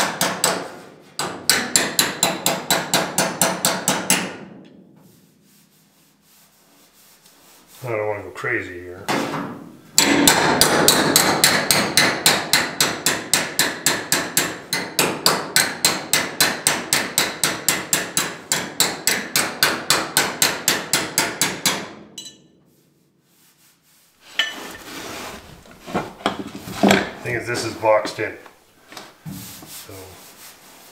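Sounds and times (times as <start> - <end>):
hammer striking steel panel: 0.0 - 4.7, 10.0 - 22.4.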